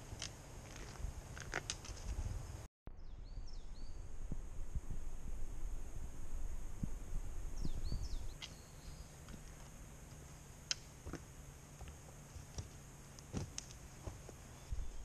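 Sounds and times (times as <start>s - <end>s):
footsteps on rocky trail: 0.2s - 2.2s, 11.0s - 14.7s
low rumble: 2.2s - 9.2s
bird chirps: 2.9s - 4.2s, 7.5s - 9.2s.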